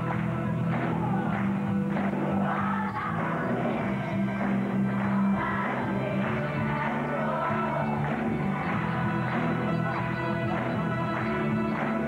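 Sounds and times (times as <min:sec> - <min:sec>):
children's choir singing: 0:00.8 - 0:12.0.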